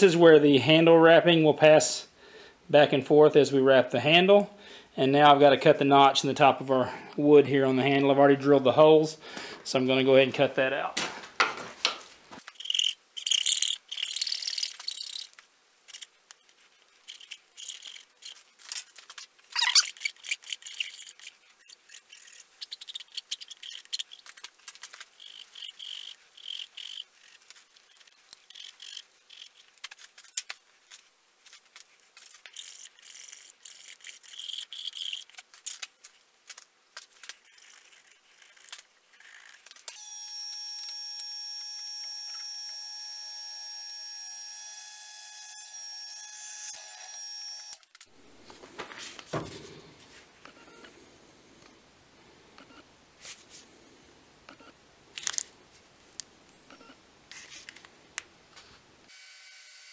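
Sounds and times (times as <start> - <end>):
knife scraping and slicing wood: 12.4 - 39.9
drill press motor whining: 40.0 - 47.8.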